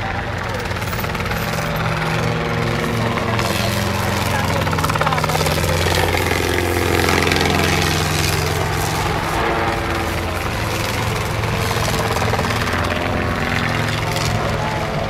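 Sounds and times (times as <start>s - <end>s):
helicopter engine and rotor: 0.0s - 15.0s.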